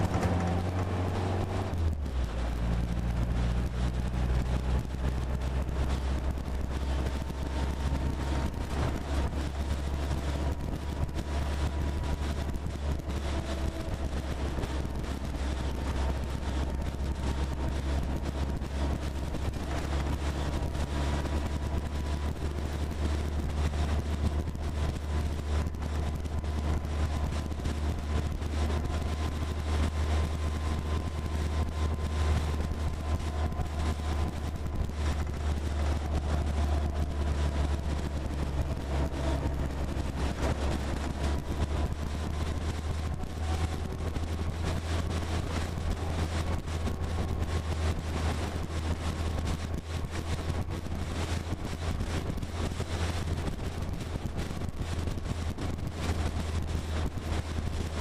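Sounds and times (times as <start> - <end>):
jeep engine drone: 0.0 - 58.0
wind noise: 0.0 - 58.0.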